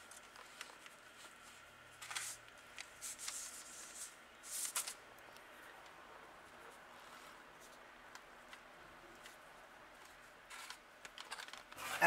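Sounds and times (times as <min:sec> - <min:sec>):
baking paper rustling: 0:00.0 - 0:05.0.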